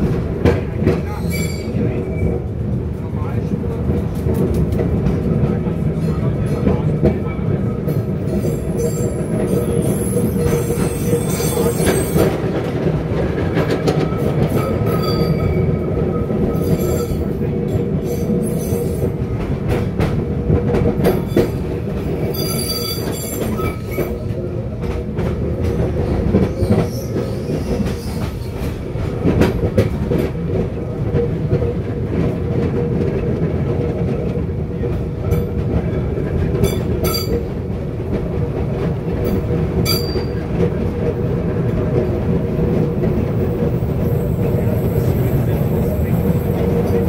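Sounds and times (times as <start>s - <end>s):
tram rumbling on track: 0.0s - 47.0s
steel wheel squeal: 22.3s - 24.0s.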